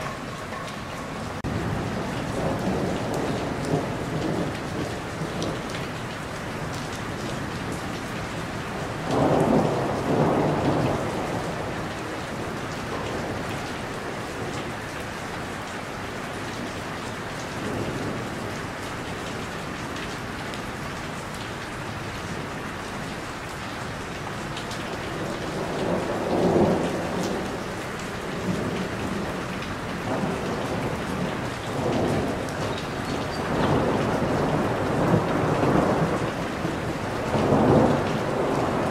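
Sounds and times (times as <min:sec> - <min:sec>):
steady rain: 0:00.0 - 0:38.9
thunder rolling: 0:25.2 - 0:38.9.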